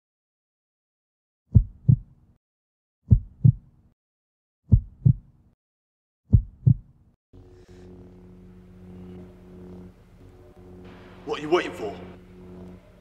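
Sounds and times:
heartbeat thumps: 1.5 - 2.2, 3.1 - 3.7, 4.7 - 5.3, 6.3 - 7.0
low steady hum with held tones: 7.4 - 13.0.

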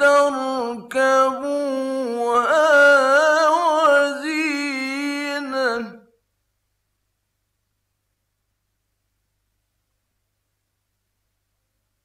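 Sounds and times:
man chanting melodic recitation: 0.0 - 6.1.

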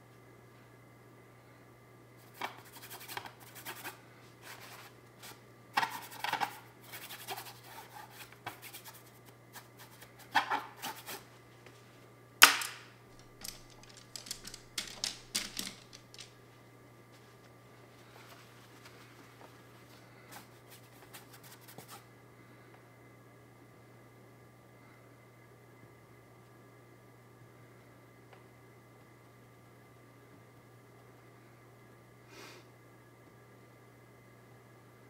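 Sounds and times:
faint low hum: 0.0 - 35.0
paint brush scratching canvas: 2.3 - 11.2, 20.4 - 22.0.

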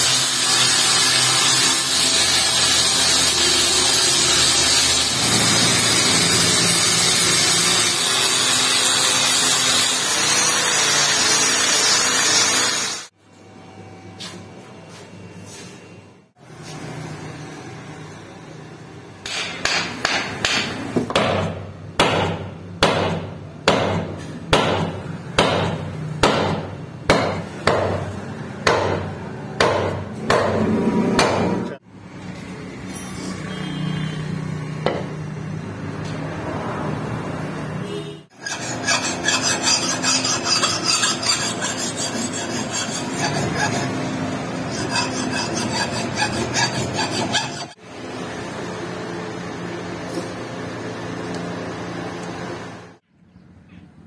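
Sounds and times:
sharp knocks of hammering wood: 19.2 - 28.0, 28.6 - 30.6, 31.2 - 31.6
file rasping on steel blade: 38.3 - 47.8.

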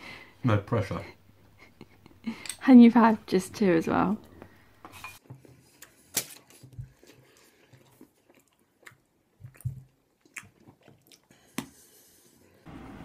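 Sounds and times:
person chewing: 6.8 - 11.9.

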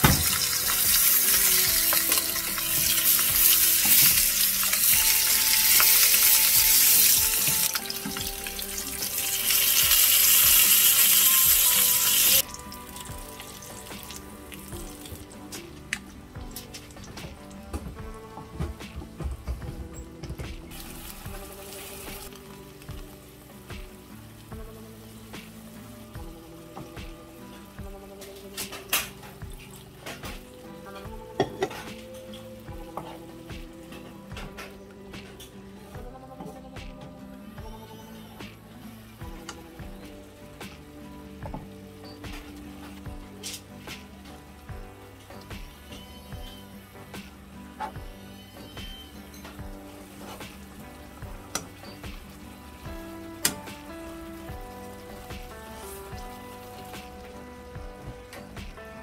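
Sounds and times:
meat sizzling in a frying pan: 0.0 - 15.4, 20.7 - 30.7, 39.2 - 58.4
faint background music: 0.0 - 59.0.

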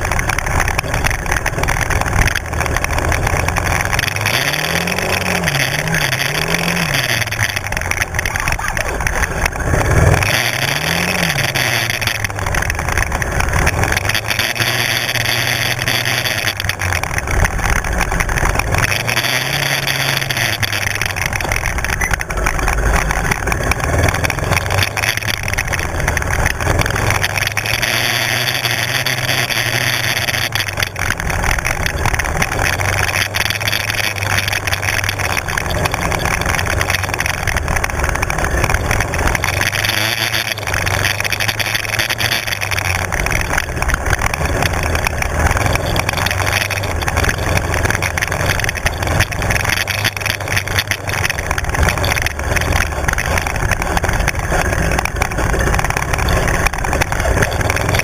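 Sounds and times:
quad engine revving: 0.0 - 58.0.

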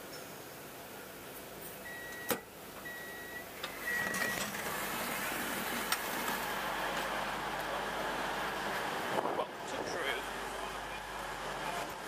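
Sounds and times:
steady rushing noise: 4.7 - 12.0.

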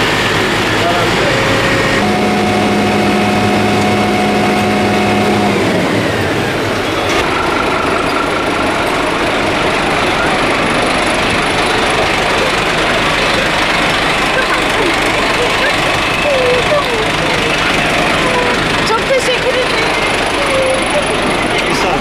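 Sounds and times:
steady hum: 0.0 - 6.0
diesel engine running: 0.0 - 22.0.

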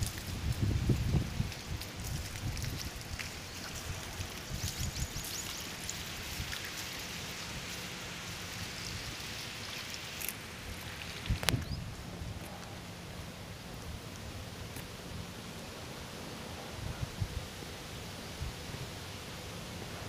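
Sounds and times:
outdoor background hiss: 0.0 - 20.0.

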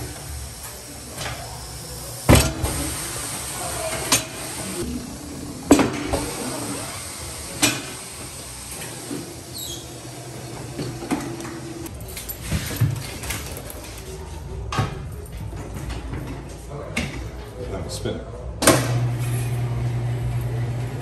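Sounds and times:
short high squeak: 9.5 - 9.9.

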